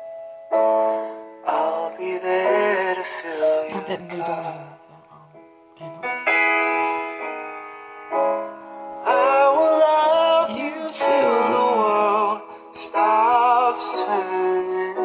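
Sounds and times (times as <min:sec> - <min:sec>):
held keyboard chords: 0:00.0 - 0:15.0
high sung vocal with vibrato: 0:01.5 - 0:06.1, 0:09.1 - 0:13.0.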